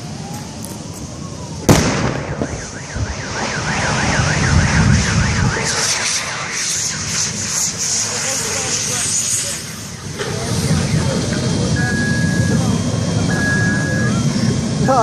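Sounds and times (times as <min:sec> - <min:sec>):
fire rumbling: 0:00.0 - 0:15.0
gas cylinder explosion bang: 0:01.7 - 0:07.8
car alarm warbling: 0:02.3 - 0:09.0, 0:09.6 - 0:15.0
high hiss: 0:04.7 - 0:10.9.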